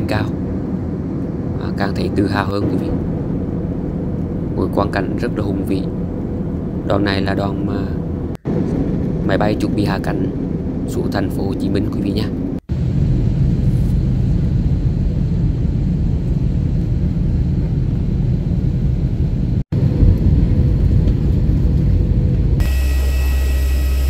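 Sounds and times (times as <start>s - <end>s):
airplane cabin rumble: 0.0s - 24.0s
low hum: 0.0s - 24.0s
high whining tones: 21.8s - 24.0s.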